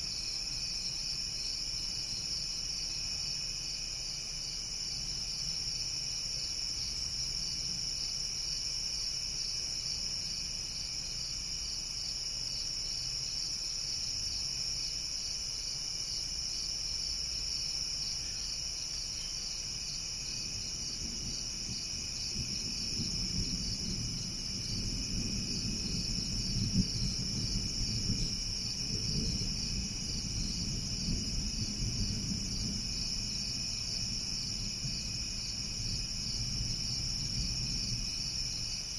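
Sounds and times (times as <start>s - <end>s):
crickets chirping: 0.0s - 38.9s
distant thunder rumbling: 20.5s - 38.6s.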